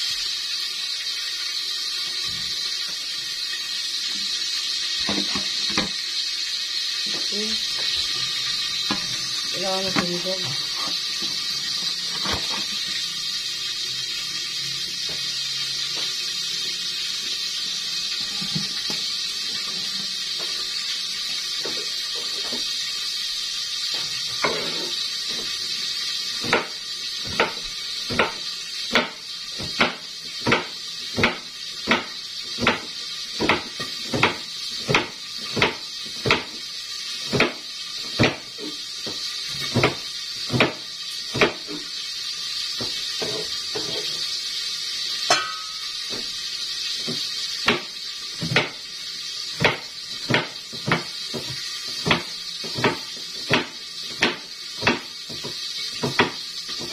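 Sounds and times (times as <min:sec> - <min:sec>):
knife chopping on cutting board: 0:26.4 - 0:36.6, 0:37.3 - 0:41.8, 0:47.6 - 0:48.8, 0:49.6 - 0:56.9.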